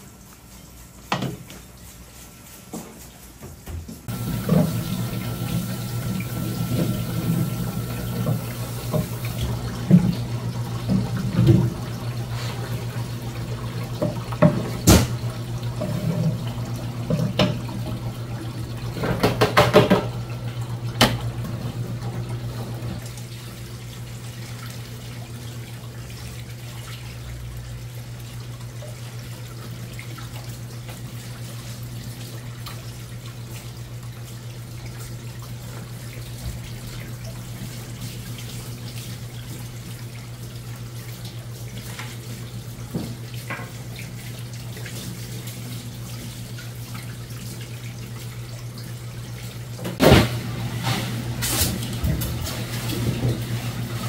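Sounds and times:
low machine hum: 0:04.1 - 0:24.2
knocks on cutting board: 0:14.0 - 0:15.2.

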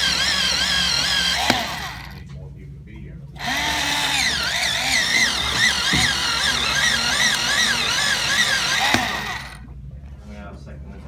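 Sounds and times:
electric pencil sharpener grinding: 0:00.0 - 0:02.2, 0:03.4 - 0:09.6.

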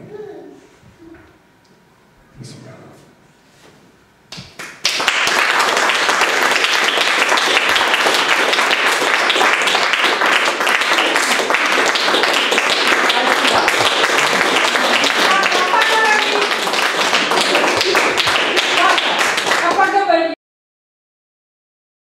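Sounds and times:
audience applauding: 0:04.6 - 0:20.2.

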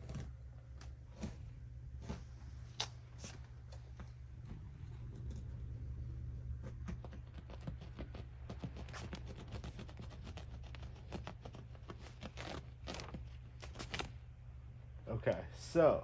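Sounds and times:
knife cutting fabric and padding: 0:06.6 - 0:14.1.

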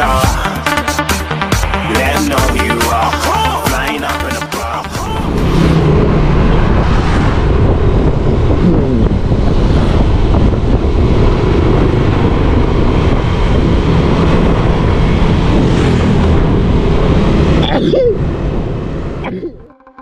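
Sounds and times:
wind buffeting microphone: 0:05.1 - 0:17.6.

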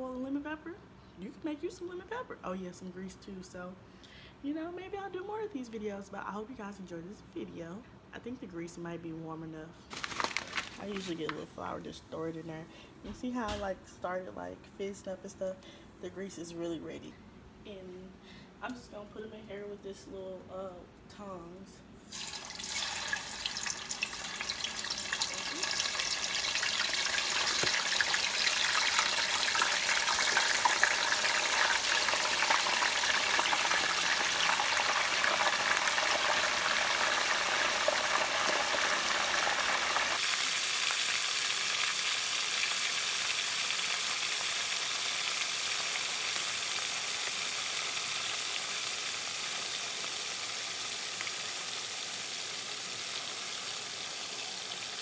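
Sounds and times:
chicken wings deep-frying sizzle: 0:09.9 - 0:11.2, 0:22.1 - 0:55.0.

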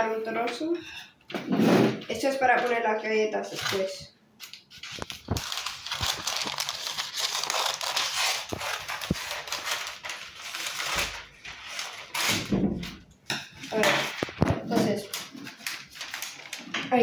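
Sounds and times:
baking paper crinkling: 0:03.4 - 0:17.0.

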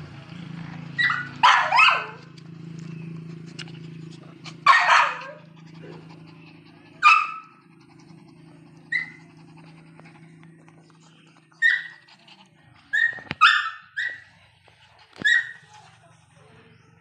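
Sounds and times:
small dog yapping: 0:01.0 - 0:02.2, 0:04.4 - 0:08.0, 0:08.8 - 0:10.2, 0:11.4 - 0:14.3, 0:15.1 - 0:15.6.

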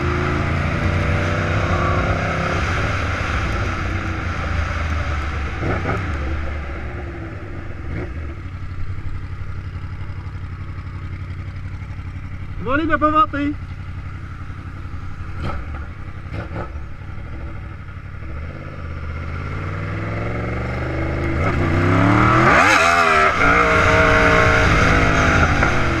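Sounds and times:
motorcycle engine accelerating: 0:00.0 - 0:26.0.

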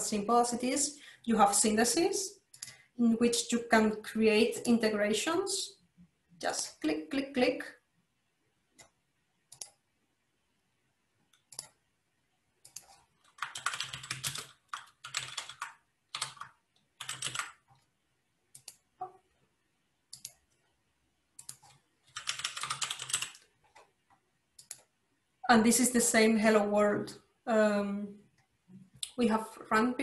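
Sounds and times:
computer keyboard typing: 0:08.8 - 0:09.8, 0:11.3 - 0:11.8, 0:12.6 - 0:19.1, 0:20.1 - 0:20.7, 0:21.4 - 0:24.0, 0:24.6 - 0:24.9.

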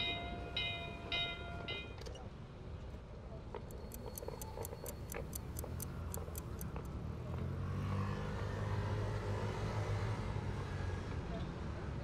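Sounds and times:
watch ticking fast: 0:03.6 - 0:06.9.

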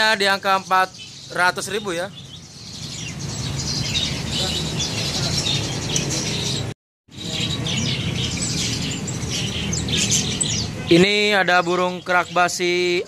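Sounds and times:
songbirds chirping: 0:00.0 - 0:13.0.

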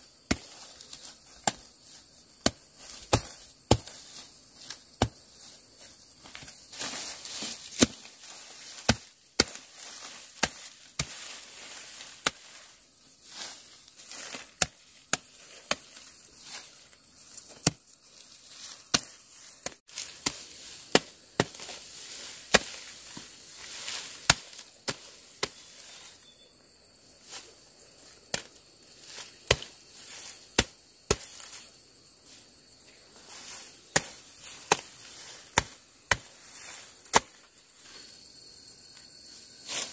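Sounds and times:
stalks rustling: 0:00.1 - 0:26.2
blade chopping dry grass: 0:00.2 - 0:26.2, 0:28.0 - 0:31.7, 0:33.3 - 0:37.6.

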